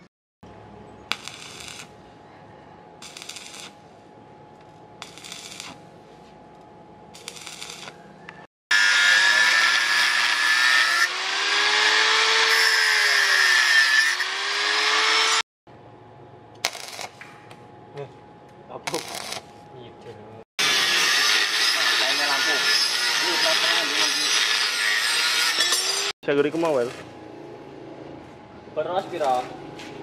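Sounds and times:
angle grinder cutting steel: 1.1s - 1.9s, 3.0s - 3.8s, 5.0s - 5.8s, 7.2s - 8.0s, 8.7s - 15.4s, 18.9s - 19.4s, 20.6s - 27.1s
stick welding crackle: 1.1s - 2.0s, 3.0s - 3.9s, 4.5s - 5.9s, 7.1s - 8.0s, 8.7s - 14.5s, 16.6s - 17.3s, 18.9s - 19.5s.

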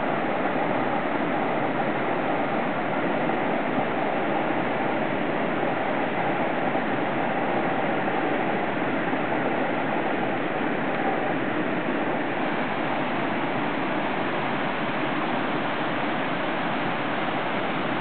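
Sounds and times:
stream rushing over cascades: 0.0s - 18.0s.

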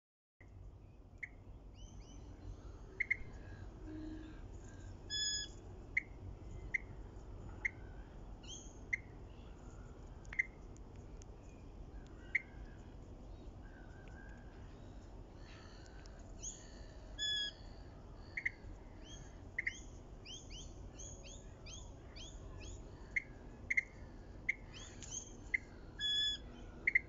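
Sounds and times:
high bird chirps: 2.9s - 3.3s, 5.1s - 6.9s, 17.2s - 17.6s, 24.5s - 27.0s
birds calling sharp notes: 15.4s - 27.0s.

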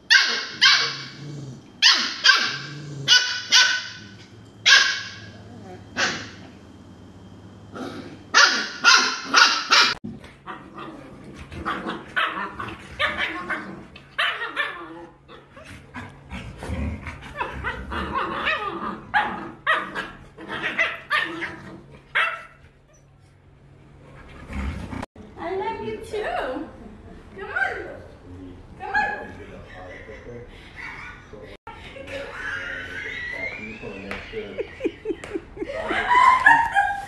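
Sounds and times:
dogs play barking and yipping: 0.0s - 6.7s, 7.9s - 25.1s
dog barking sharply: 0.1s - 1.1s, 1.8s - 4.1s, 8.3s - 10.0s.

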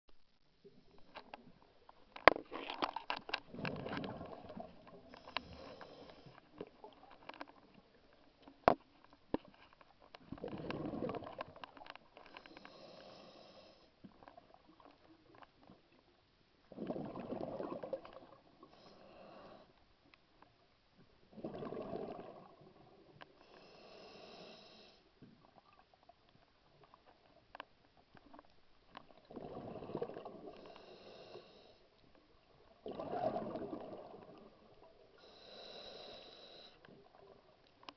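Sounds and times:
exhaled bubbles: 3.4s - 5.6s, 10.3s - 11.6s, 16.7s - 18.6s, 21.3s - 23.0s, 29.2s - 30.7s, 32.4s - 35.6s
regulator hiss on inhale: 5.1s - 6.6s, 12.3s - 14.0s, 18.6s - 19.9s, 23.4s - 25.2s, 30.5s - 31.9s, 35.2s - 37.0s.

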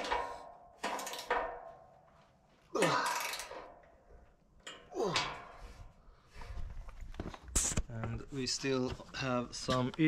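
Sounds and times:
wrench creaking metal on metal: 0.0s - 1.8s, 2.8s - 5.8s.

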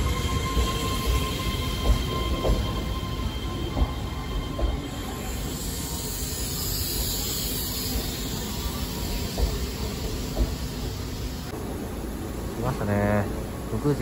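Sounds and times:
low thuds from train wheels: 0.0s - 6.0s, 7.0s - 11.9s
electric train braking: 0.0s - 11.5s.

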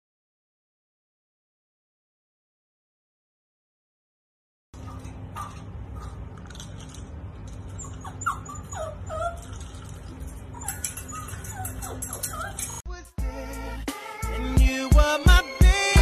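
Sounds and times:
dogs whimpering: 4.8s - 12.8s
puppy pawing metal gate: 4.8s - 12.8s.

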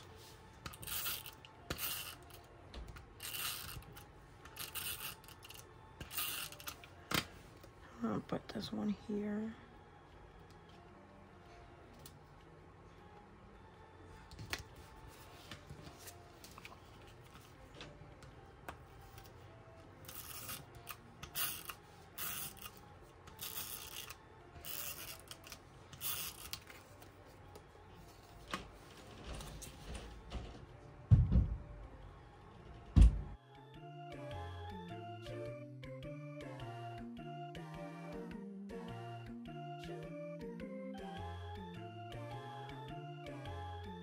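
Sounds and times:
tape runner on paper: 0.6s - 7.3s
heavy thumps: 30.2s - 31.9s.

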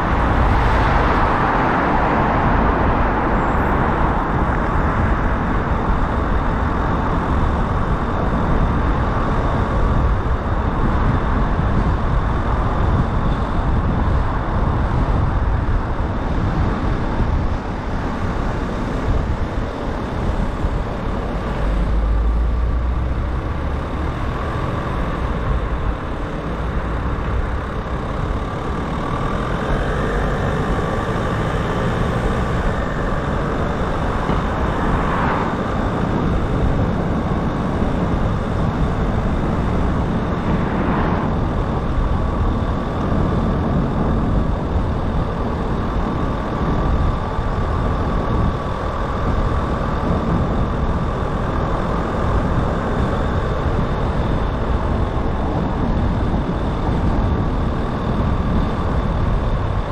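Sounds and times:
deep rumble: 0.0s - 18.0s, 19.0s - 59.9s
car road noise: 0.0s - 59.9s.

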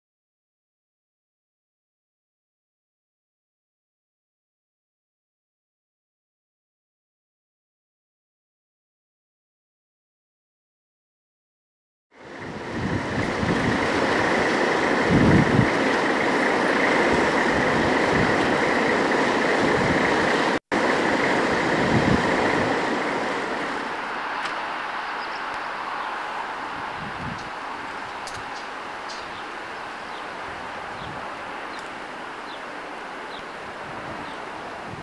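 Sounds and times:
railway yard noise: 12.1s - 35.0s.

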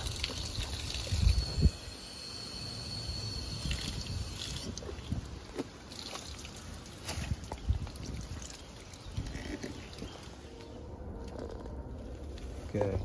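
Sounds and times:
water splashing into plastic jug: 3.6s - 10.1s.

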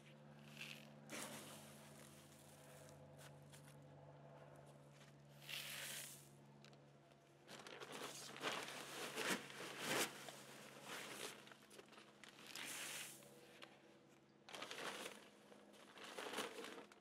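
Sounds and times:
granules poured from a bag: 14.5s - 17.0s
granules poured into plastic bucket: 15.8s - 17.0s.

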